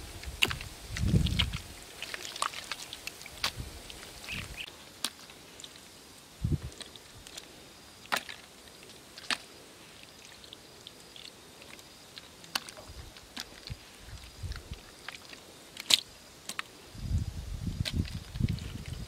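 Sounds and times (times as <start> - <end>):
soil clods crunching: 0.0 - 16.8, 17.5 - 19.0
hands scraping dry mud: 0.2 - 5.8, 17.7 - 19.0.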